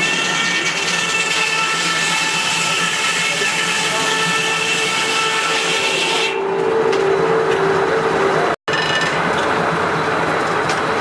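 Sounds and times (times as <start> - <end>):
rasping sawing: 0.0 - 6.4
saw blade whining: 0.0 - 9.2.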